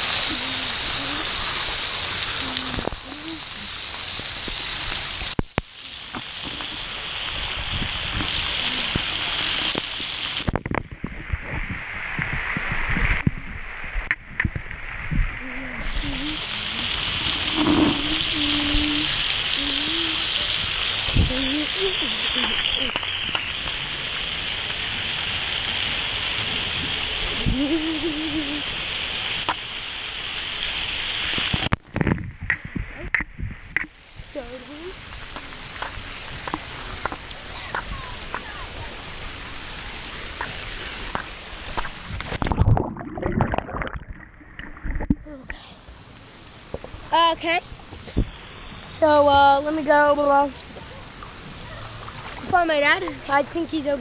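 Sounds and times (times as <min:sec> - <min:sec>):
water dripping: 0:00.0 - 0:11.2, 0:15.4 - 0:54.0
water spray hitting camera: 0:00.0 - 0:14.7, 0:15.4 - 0:43.9, 0:44.9 - 0:54.0
child vocal sound: 0:00.1 - 0:01.4, 0:02.3 - 0:03.8, 0:15.3 - 0:17.0, 0:17.8 - 0:20.5, 0:21.2 - 0:23.0, 0:27.4 - 0:28.8.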